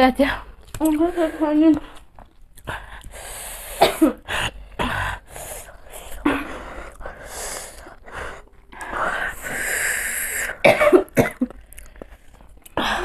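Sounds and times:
women coughing: 3.8s - 4.3s, 10.6s - 11.6s.

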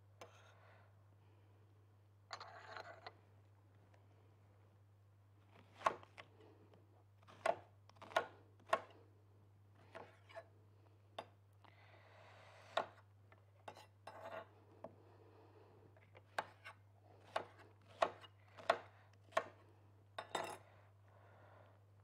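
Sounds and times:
knife chopping on cutting board: 7.3s - 9.0s, 9.8s - 10.4s, 16.3s - 19.6s
knife scraping on board: 13.6s - 14.5s.

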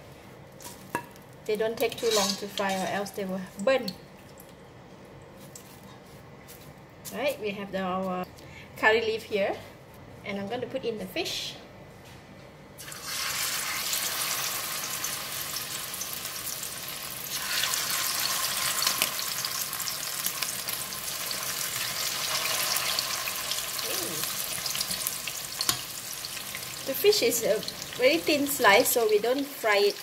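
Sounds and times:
fish sizzling in hot oil: 12.8s - 30.0s.

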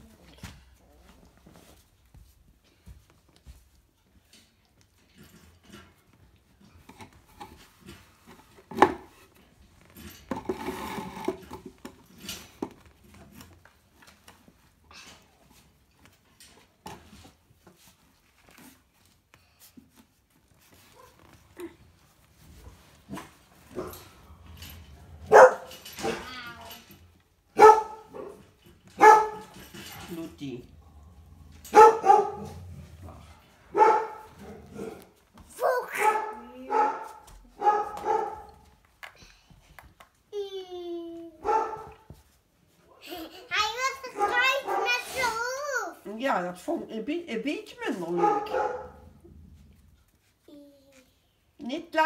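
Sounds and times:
puppy barking: 25.3s - 26.2s, 27.6s - 28.4s, 29.0s - 29.6s, 31.7s - 32.6s, 33.7s - 35.0s, 35.8s - 38.5s, 41.4s - 42.0s, 44.1s - 45.2s, 48.1s - 49.0s.

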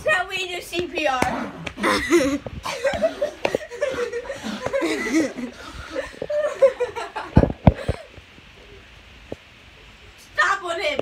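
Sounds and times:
children laughing: 1.7s - 8.2s.

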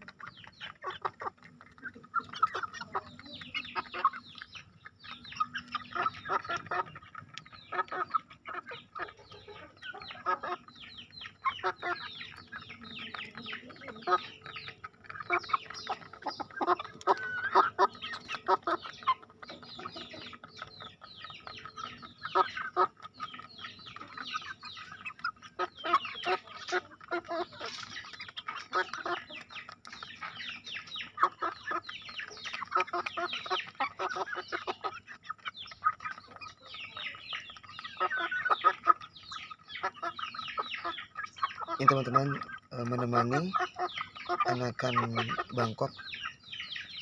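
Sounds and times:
beaks pecking on stone: 0.0s - 47.0s
soft chicken calls: 0.0s - 47.0s.

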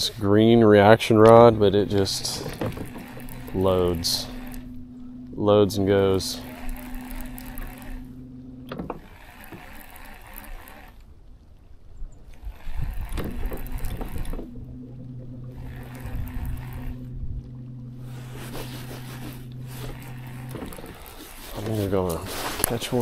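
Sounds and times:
low bumps: 0.0s - 10.9s, 12.4s - 23.0s
electric trolling motor humming: 0.0s - 23.0s
water lapping: 0.0s - 23.0s.

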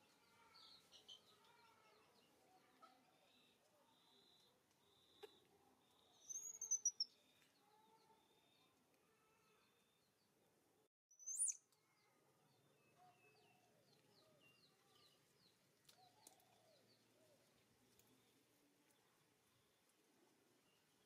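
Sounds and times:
small birds chirping and whistling: 6.2s - 7.2s, 11.1s - 11.6s.

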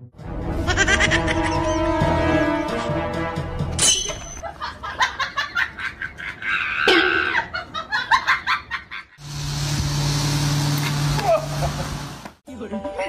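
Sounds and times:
people laughing: 0.6s - 1.7s, 4.4s - 9.2s, 11.2s - 12.0s.

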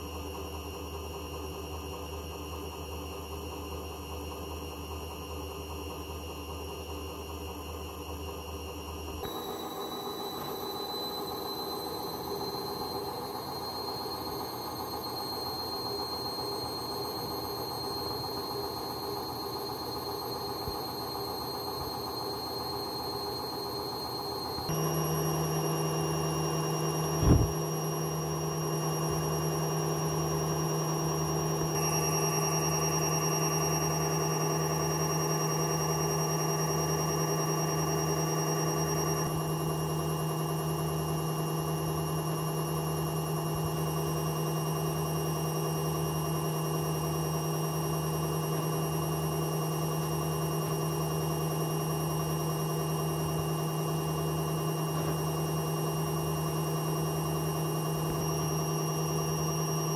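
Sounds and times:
washing machine drone: 0.0s - 59.9s
pulsing low rumble: 27.2s - 27.5s.

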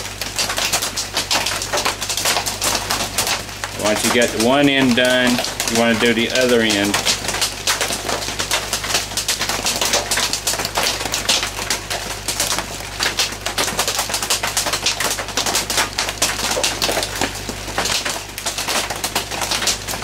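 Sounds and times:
low steady hum: 0.0s - 15.5s
heavy rain on a tin roof: 0.0s - 20.0s.

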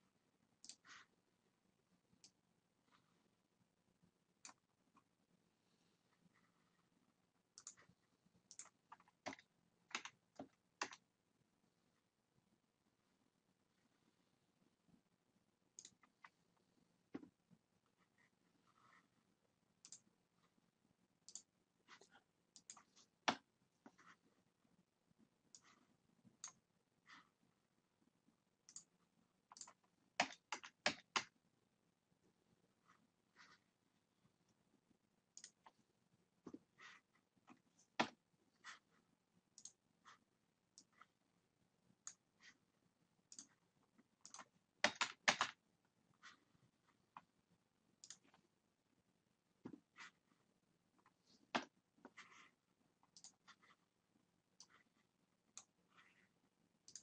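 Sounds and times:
computer mouse clicks: 0.6s - 1.1s, 4.4s - 5.1s, 7.5s - 11.0s, 15.7s - 16.4s, 19.8s - 20.1s, 21.2s - 23.5s, 26.4s - 26.6s, 28.6s - 31.4s, 35.3s - 35.8s, 39.6s - 39.8s, 42.0s - 42.5s, 43.3s - 43.6s, 44.2s - 45.6s, 48.0s - 48.4s, 53.0s - 53.8s
mouse and keyboard clicks: 7.6s - 7.9s, 29.5s - 31.4s, 44.2s - 45.6s
keyboard key presses: 44.2s - 45.6s.

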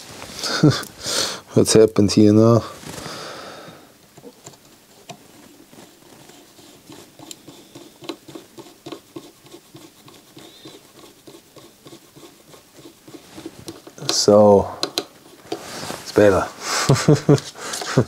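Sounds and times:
small mechanism clicks and taps: 14.8s - 15.6s.

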